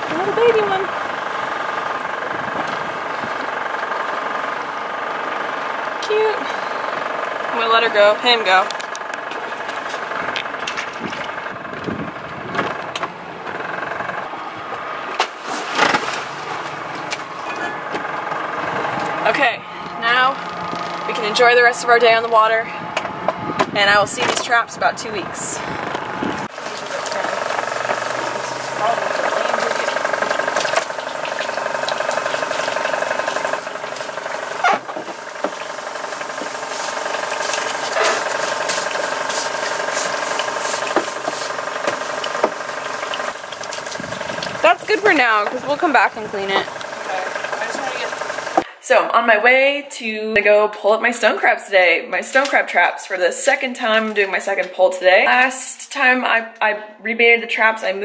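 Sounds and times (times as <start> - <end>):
motor running with fast pulse: 0.0 - 48.7
boat engine idling: 0.0 - 48.8
deck brush scrubbing fiberglass: 13.3 - 48.7.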